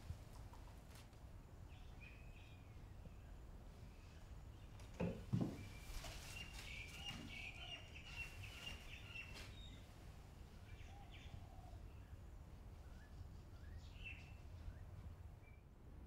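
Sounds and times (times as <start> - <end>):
faint outdoor background noise: 0.0 - 16.0
small birds chirping: 1.6 - 15.7.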